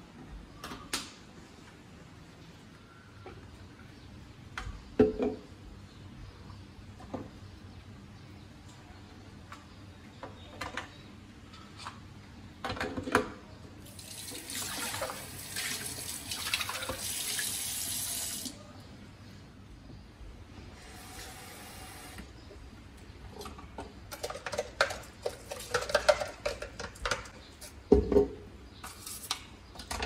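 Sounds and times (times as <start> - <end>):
faucet running water: 13.9 - 18.5
things clattering in sink: 23.4 - 28.4.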